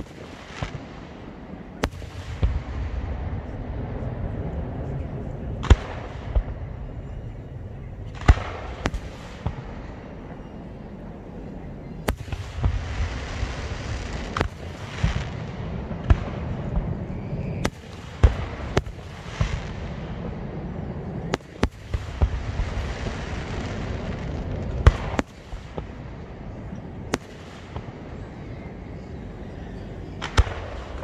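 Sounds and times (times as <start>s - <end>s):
fireworks crackling: 0.0s - 10.3s, 12.0s - 29.1s, 30.2s - 31.0s
fireworks bangs: 0.0s - 10.7s, 11.9s - 29.1s, 30.1s - 31.0s
low rumble: 1.3s - 12.0s.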